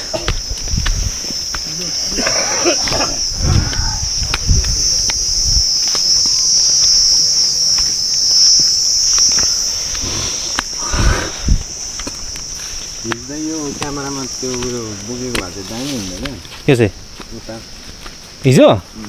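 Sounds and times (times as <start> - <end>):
insect chorus: 0.0 - 19.0
low voices: 1.6 - 6.9.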